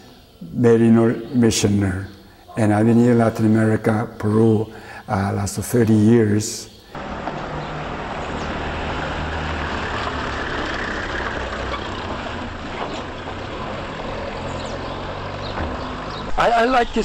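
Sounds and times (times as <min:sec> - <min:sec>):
road noise hiss: 0:04.6 - 0:05.6, 0:06.7 - 0:17.0
minibus engine running: 0:07.0 - 0:16.4.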